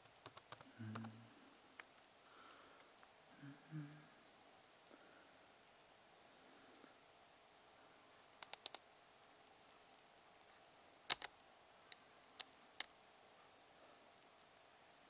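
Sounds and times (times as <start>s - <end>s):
laptop keys clicking: 0.0s - 1.1s, 8.4s - 8.8s, 11.1s - 11.4s.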